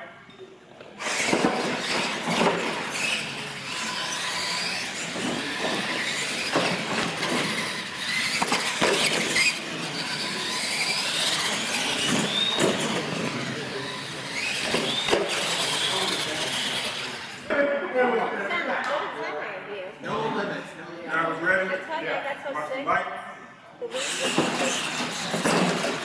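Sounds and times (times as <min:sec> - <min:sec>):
motor whines gliding in pitch: 0:01.0 - 0:17.5
toy truck motors and tyres: 0:01.0 - 0:17.5, 0:23.9 - 0:26.0.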